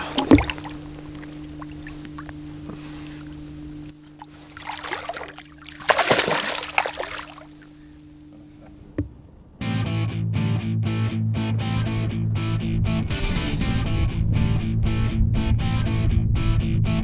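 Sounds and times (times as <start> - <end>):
fish splashing in water: 0.0 - 7.9
steady low hum: 0.0 - 17.0.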